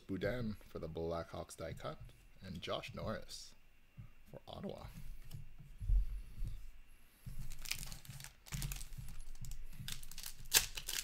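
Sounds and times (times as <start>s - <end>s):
foil wrappers crinkling: 7.4s - 11.0s.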